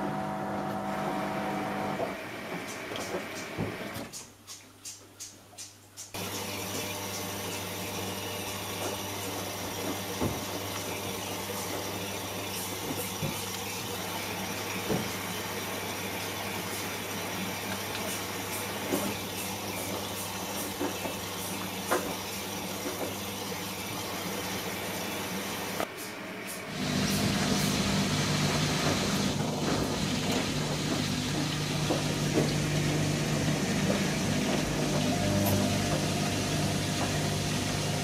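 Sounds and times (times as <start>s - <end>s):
low motor hum: 0.0s - 2.1s, 26.7s - 38.0s
washing machine water rushing: 0.0s - 4.1s, 6.1s - 38.0s.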